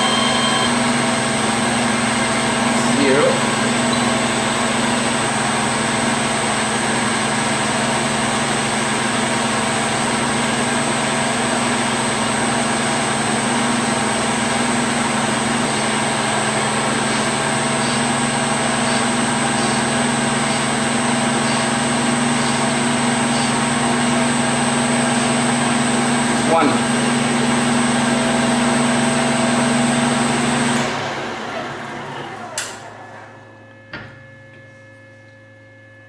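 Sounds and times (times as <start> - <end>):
metal lathe humming: 0.0 - 34.8.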